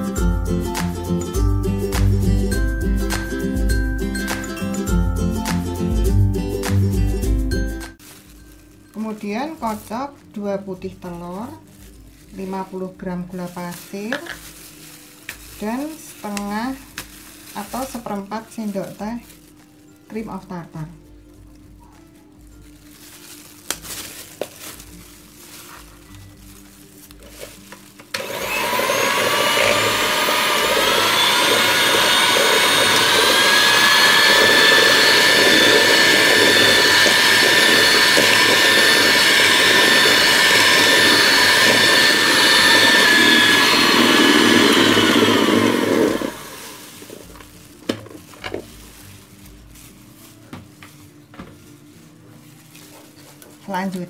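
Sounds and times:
electric hand mixer whine: 28.1 - 47.4.

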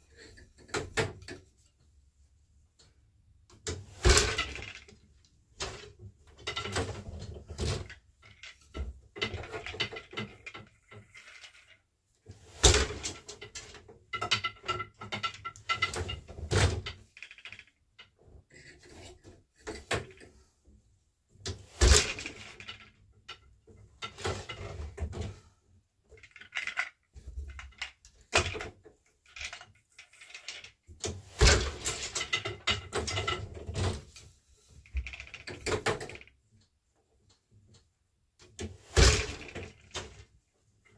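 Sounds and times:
loom shuttles clattering: 31.3 - 34.1.

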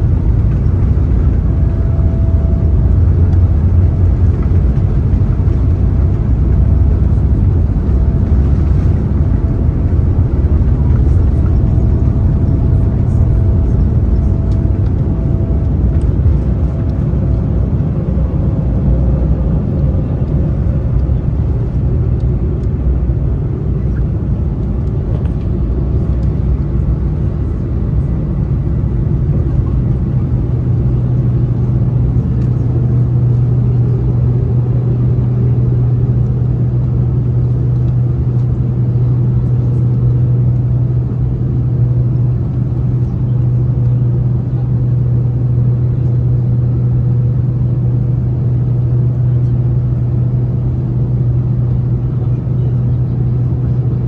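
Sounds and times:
jet engine drone in cabin: 0.0 - 54.0
low rumble: 0.0 - 54.0.

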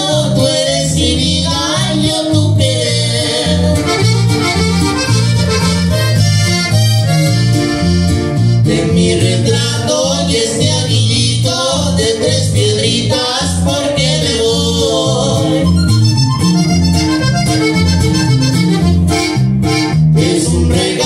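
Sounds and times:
guitar and bass beat: 0.0 - 21.0
accordion melody: 1.2 - 10.5, 13.0 - 21.0.

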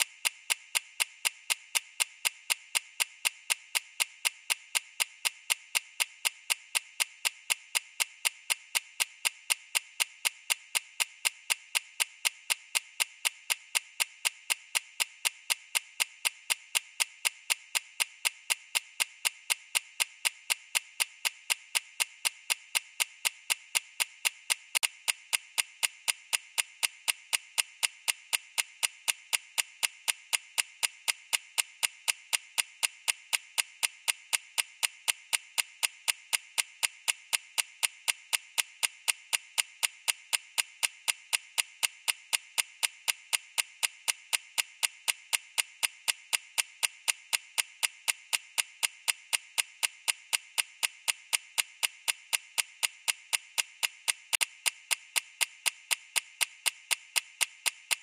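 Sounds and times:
clock ticking: 0.0 - 58.0.

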